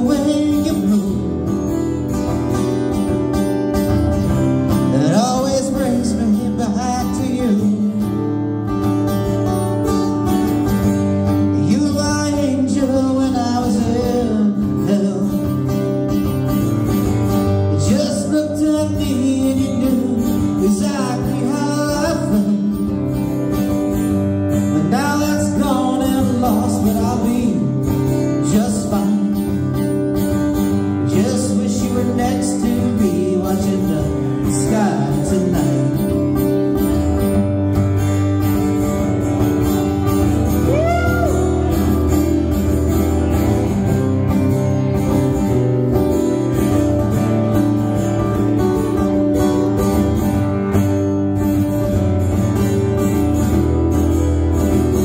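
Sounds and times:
man singing: 0.0 - 2.0, 4.8 - 8.5, 11.4 - 15.9, 17.6 - 23.2, 24.6 - 29.9, 30.8 - 36.5, 40.0 - 42.4
acoustic guitars strummed: 0.0 - 55.0.

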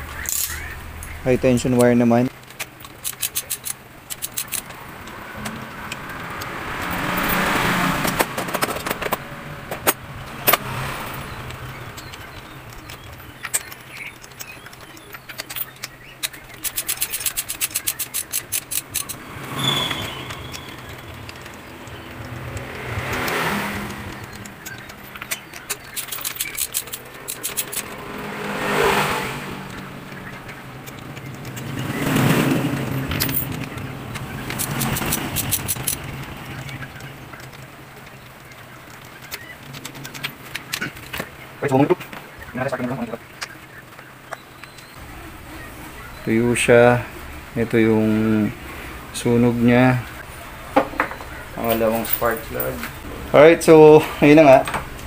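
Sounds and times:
metal clicks and taps: 0.2 - 7.0, 11.4 - 19.2, 19.9 - 28.0, 29.7 - 31.9, 33.1 - 41.3
ratchet clicking: 2.4 - 7.4, 11.5 - 28.1, 30.8 - 36.8
loud rushing swell: 26.9 - 30.8.

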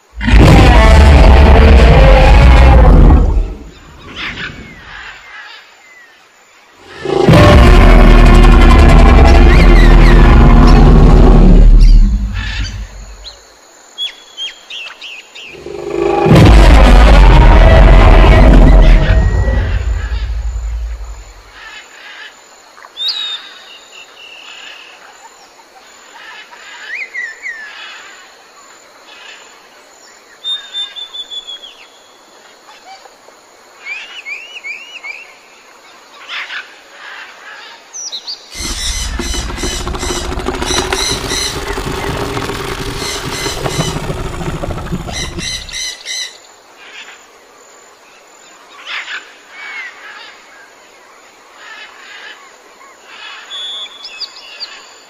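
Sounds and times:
loud deep noisy sound effect: 0.2 - 3.6, 6.8 - 13.0, 15.6 - 21.3, 38.6 - 45.8.

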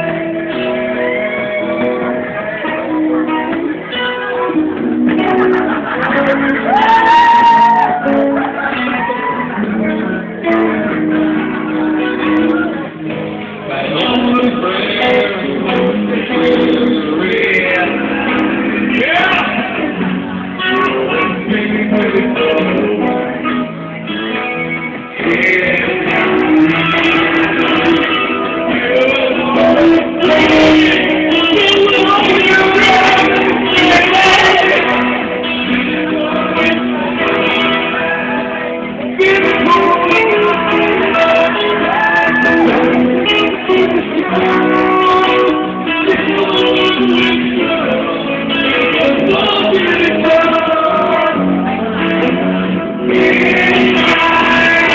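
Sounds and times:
guitars playing: 0.0 - 54.9.

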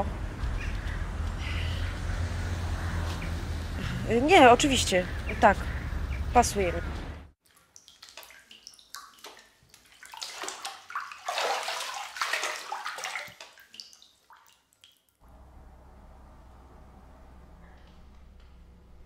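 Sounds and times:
low hum: 0.0 - 7.3, 15.2 - 19.0
water sloshing in a bathtub: 7.4 - 15.2.

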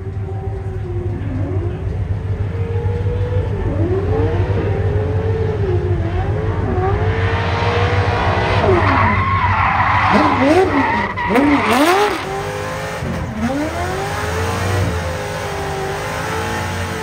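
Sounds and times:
car engine revving: 0.0 - 17.0
tyre squeal: 8.6 - 12.3.

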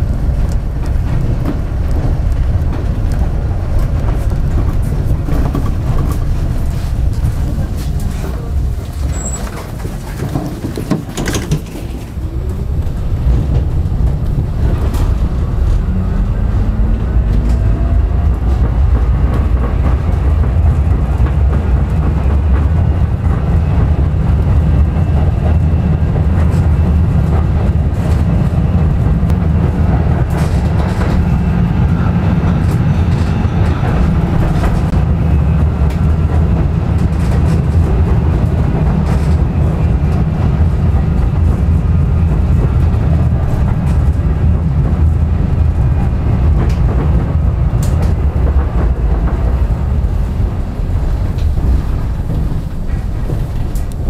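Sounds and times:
tram wheels rumbling on rail: 0.0 - 54.0
knocks at rail joints: 0.3 - 12.2.

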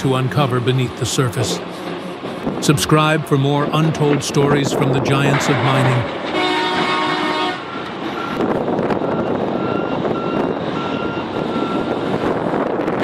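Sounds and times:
loud engine and machinery noise: 0.0 - 13.0
horn-like tone: 5.3 - 8.4
reversing alarm beeping: 8.1 - 12.0.

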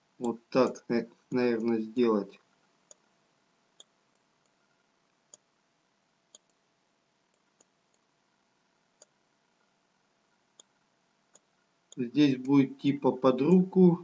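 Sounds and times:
faint mouse clicks: 2.4 - 3.1, 3.8 - 5.5, 6.3 - 6.6, 7.3 - 8.1, 9.0 - 12.6.

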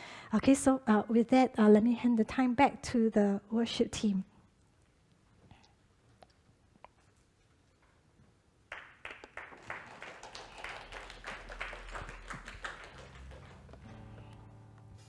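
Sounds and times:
scattered hand clapping: 8.7 - 13.9.

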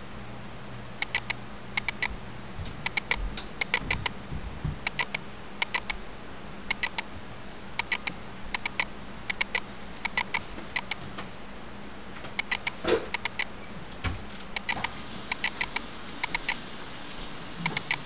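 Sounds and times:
steady low hum: 0.0 - 18.0
sharp clicks: 1.0 - 2.1, 2.8 - 4.1, 4.8 - 6.0, 6.7 - 7.1, 7.8 - 11.0, 12.4 - 13.5, 14.5 - 16.6, 17.6 - 18.0.

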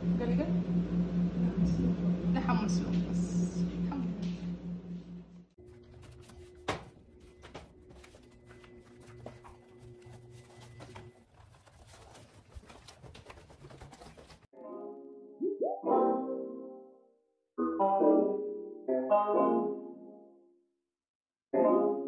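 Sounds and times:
faint steady hum: 0.0 - 5.9
rustling handling noise: 5.6 - 14.5
piano music: 14.6 - 20.2.

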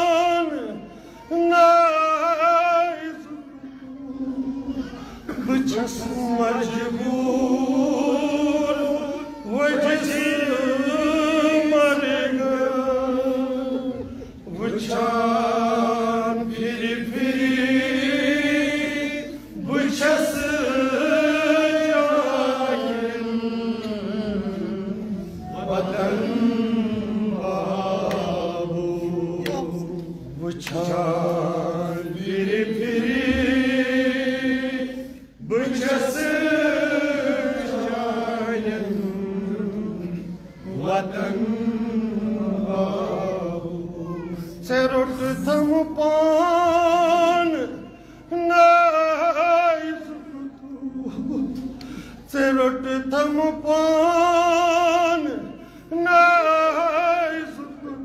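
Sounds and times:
man chanting a lament: 0.0 - 23.6, 38.4 - 58.0.

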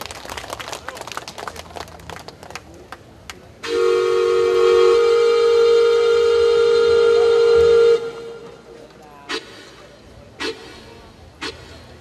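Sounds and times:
imitation train whistle: 3.6 - 8.6, 10.4 - 11.8.

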